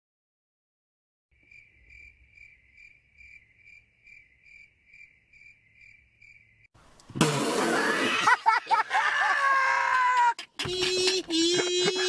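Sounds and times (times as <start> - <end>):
crickets chirping: 1.3 - 6.7.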